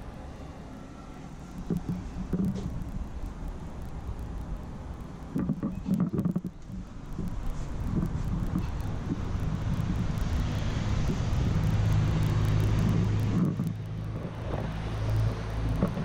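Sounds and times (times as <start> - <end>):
low engine hum: 0.0 - 16.0
rush of passing vehicles: 6.5 - 16.0.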